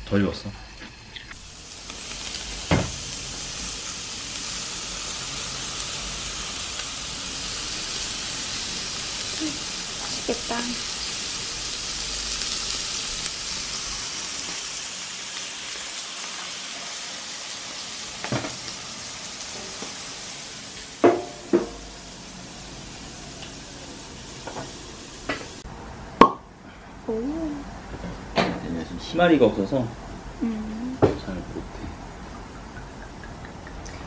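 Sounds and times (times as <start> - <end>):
meat sizzling on grill: 0.1 - 25.6.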